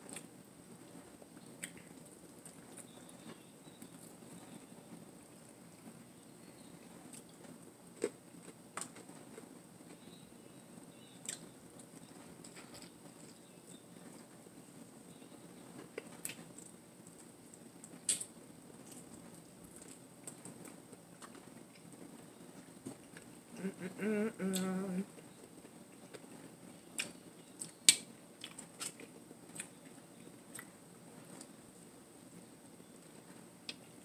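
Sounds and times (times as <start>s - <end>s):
chewing on a biscuit: 0.0s - 10.2s, 15.1s - 31.6s
person humming mmm: 23.6s - 25.2s.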